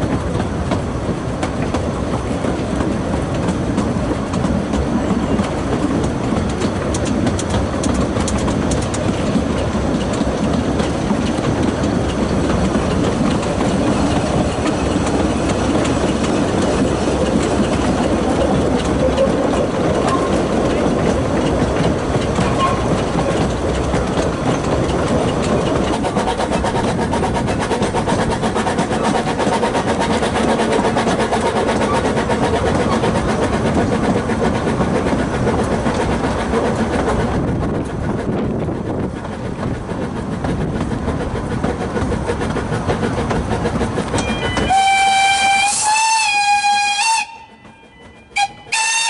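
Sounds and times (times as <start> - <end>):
train wheels clattering on rails: 0.0 - 49.0
steam whistle blast: 44.5 - 47.6, 48.3 - 49.0.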